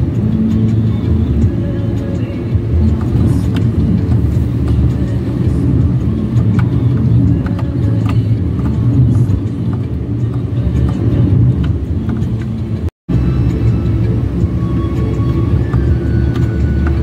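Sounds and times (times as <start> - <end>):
car engine and road rumble: 0.0 - 17.0.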